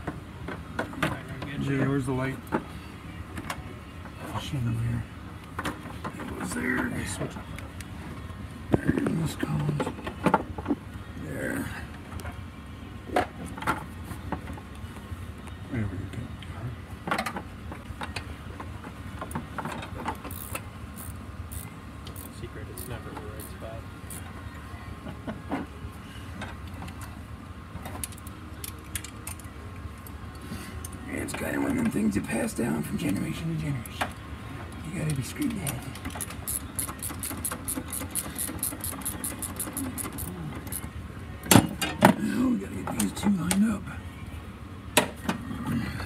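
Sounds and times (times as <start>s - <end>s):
hand ratchet clicking: 20.3s - 23.0s, 36.0s - 40.8s.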